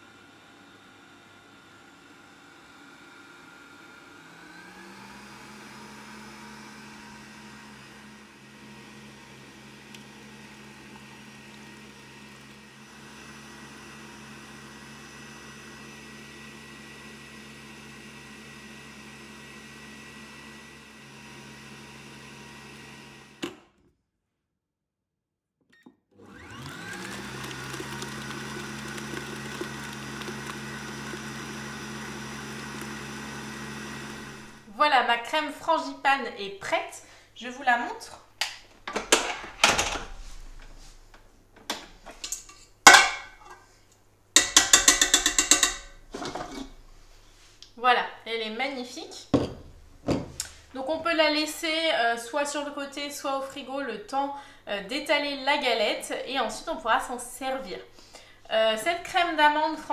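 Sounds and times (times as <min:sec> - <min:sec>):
stand mixer motor whining: 0:00.0 - 0:23.6, 0:26.1 - 0:34.7, 0:44.4 - 0:46.9.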